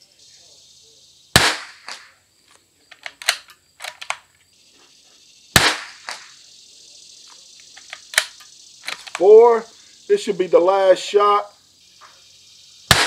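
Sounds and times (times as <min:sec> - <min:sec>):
rifle shots: 0:01.4 - 0:02.1, 0:05.6 - 0:06.3
rifle bolt metallic clicks: 0:02.9 - 0:04.2, 0:07.7 - 0:09.2.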